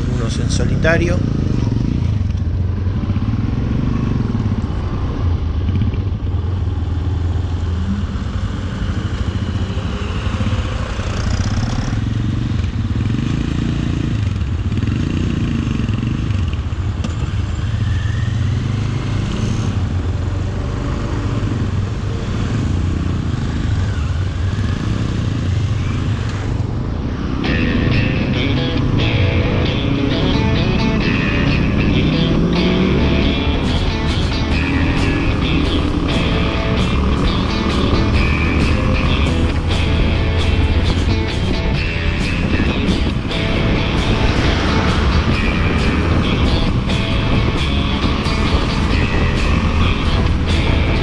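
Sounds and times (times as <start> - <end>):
motorcycle engine accelerating: 0.0 - 51.0
music: 27.4 - 51.0
wind noise on microphone: 39.0 - 51.0.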